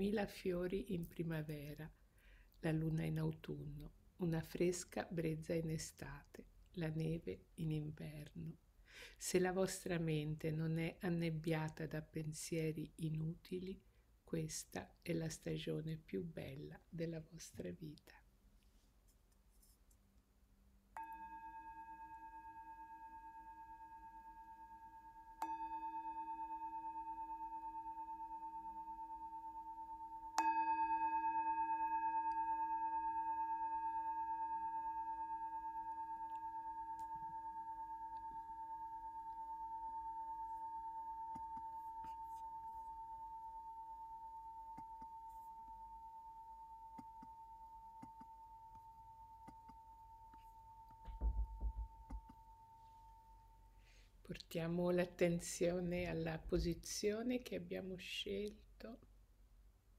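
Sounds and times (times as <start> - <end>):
singing bowl ringing: 21.0 - 53.7.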